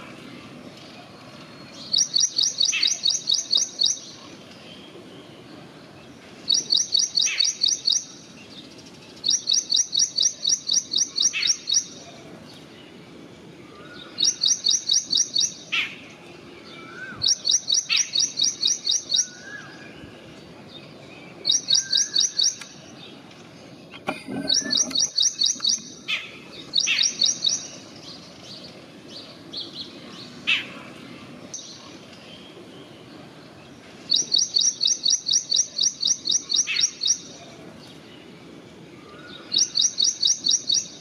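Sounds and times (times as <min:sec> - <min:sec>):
rapid high bird chirping: 0:01.7 - 0:04.1, 0:06.4 - 0:12.0, 0:14.1 - 0:16.0, 0:17.1 - 0:19.7, 0:21.3 - 0:23.2, 0:24.4 - 0:28.4, 0:34.1 - 0:37.4, 0:39.5 - 0:41.0.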